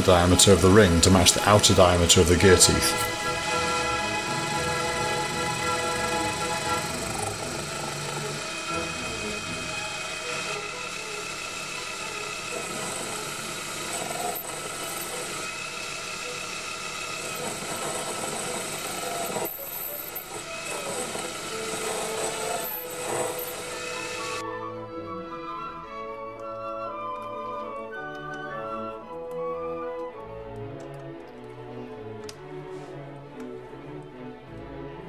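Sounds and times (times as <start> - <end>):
orchestral music: 0.0 - 13.8, 20.4 - 35.0
lathe cutting metal: 0.0 - 24.4.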